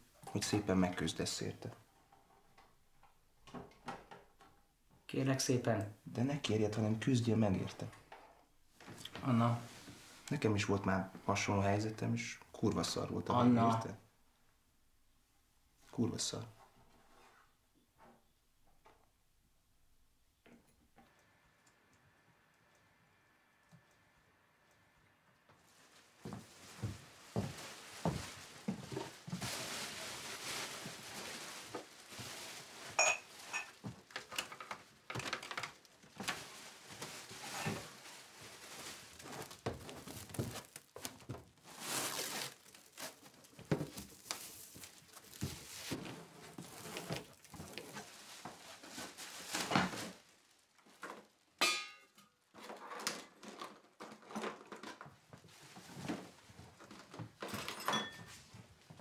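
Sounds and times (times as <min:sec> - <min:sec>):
plastic wrap crinkling: 0:25.7 - 0:51.6.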